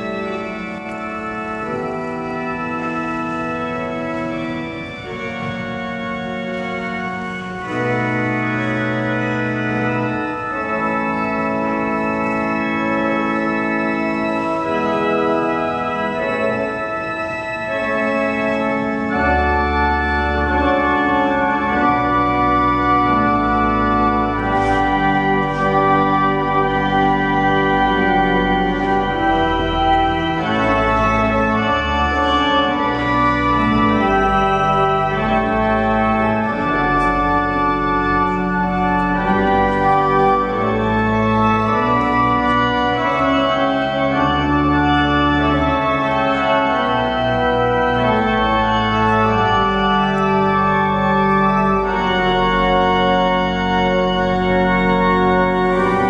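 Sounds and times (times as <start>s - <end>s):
church organ chords: 0.0s - 56.0s
deep organ pedal bass: 0.0s - 56.0s.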